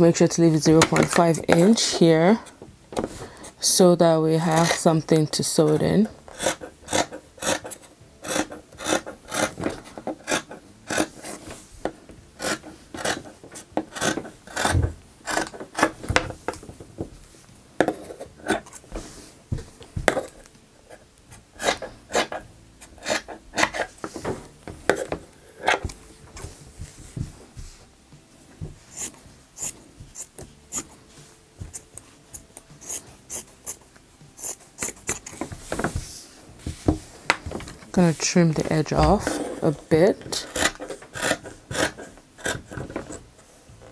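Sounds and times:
scissors snipping fabric: 5.6 - 11.4, 12.4 - 16.0, 28.9 - 30.9, 31.7 - 33.8, 34.4 - 35.4, 39.0 - 43.2.

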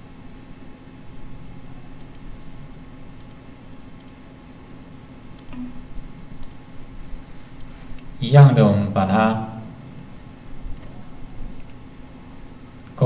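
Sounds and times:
steady low hum: 0.0 - 13.0
computer mouse clicking: 2.0 - 2.3, 3.2 - 3.4, 4.0 - 4.2, 5.4 - 5.6, 6.4 - 6.6, 7.6 - 8.1, 10.7 - 11.0, 11.6 - 11.8.

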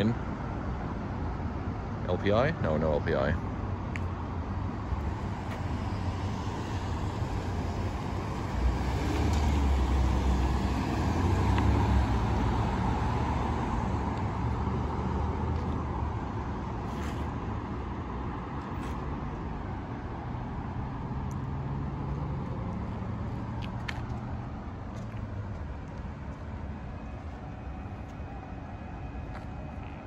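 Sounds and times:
city road traffic: 0.0 - 30.0
car driving past: 5.0 - 15.8.

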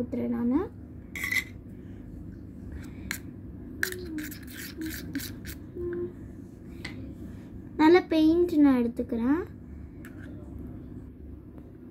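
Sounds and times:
metal spoon scraping slime: 1.2 - 1.6, 3.8 - 5.7.

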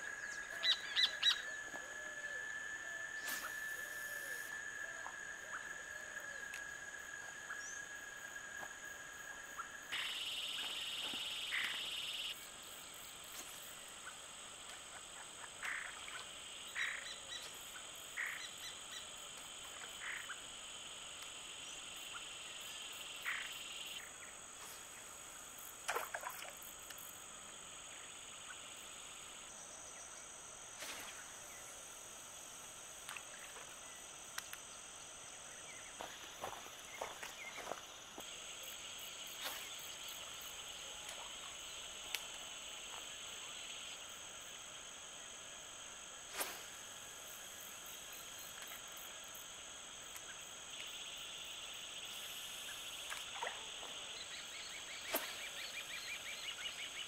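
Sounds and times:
frogs croaking: 0.0 - 3.1, 3.8 - 13.1, 13.8 - 30.4, 31.2 - 45.0
insects buzzing: 0.0 - 57.0.

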